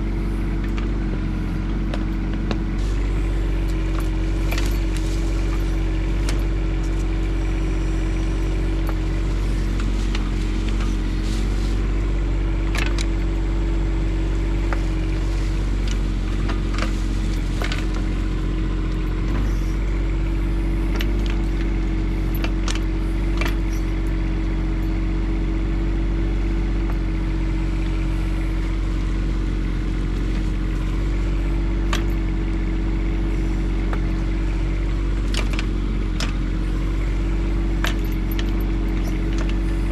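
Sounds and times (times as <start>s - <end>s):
excavator diesel engine running: 0.0s - 39.9s.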